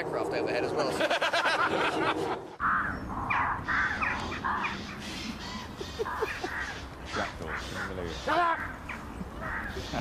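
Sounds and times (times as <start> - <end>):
crows cawing: 2.6 - 10.0.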